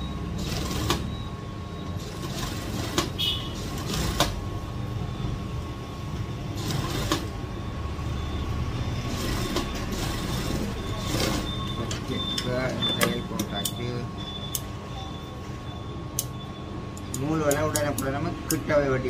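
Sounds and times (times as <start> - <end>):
sewing machine stitching: 0.4 - 1.1, 2.0 - 4.4, 6.6 - 7.3, 9.0 - 11.7
sharp clicks: 17.0 - 18.6.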